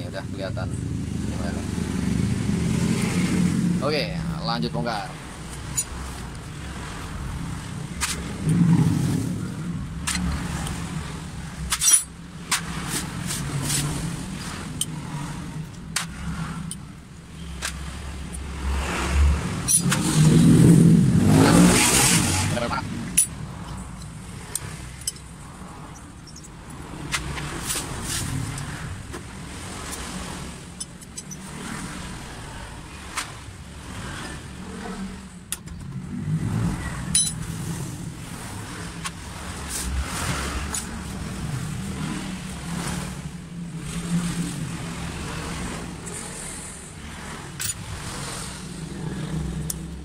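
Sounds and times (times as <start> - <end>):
road traffic rumbling: 0.0 - 50.0
wrench clicking on metal: 23.1 - 25.3.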